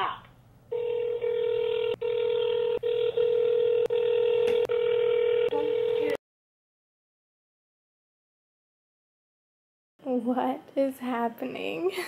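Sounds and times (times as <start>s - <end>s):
on-hold tone through phone speaker: 0.7s - 6.2s.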